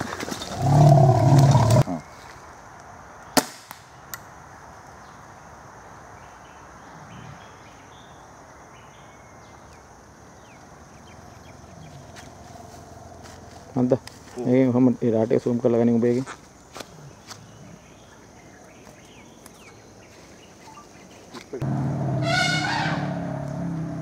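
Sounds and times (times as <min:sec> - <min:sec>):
sharp crack: 0:03.4 - 0:04.3
high insect drone: 0:04.2 - 0:24.0
loud low elephant call: 0:21.8 - 0:24.0.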